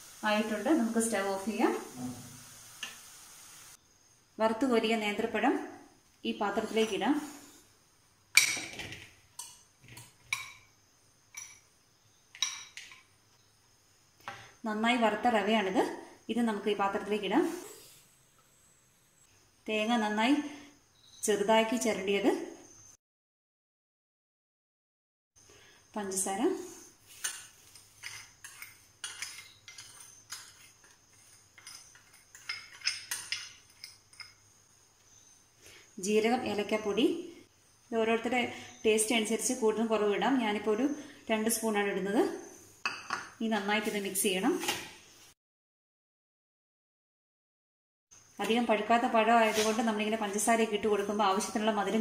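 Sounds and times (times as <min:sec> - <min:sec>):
spoon clinking against glass bowl: 0:27.2 - 0:30.6.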